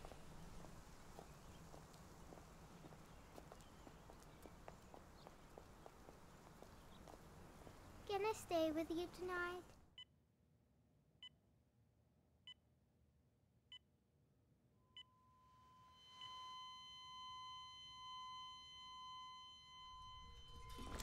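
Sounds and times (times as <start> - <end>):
flatline alarm tone: 14.9 - 21.0
heart monitor beeping: 16.0 - 21.0.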